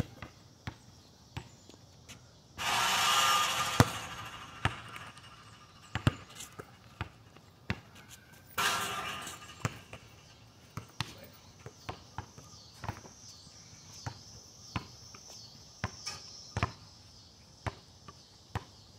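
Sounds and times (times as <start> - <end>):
basketball bouncing on asphalt: 0.0 - 1.9, 2.6 - 18.9
ball hitting hoop with rush: 2.6 - 7.9, 8.6 - 11.3.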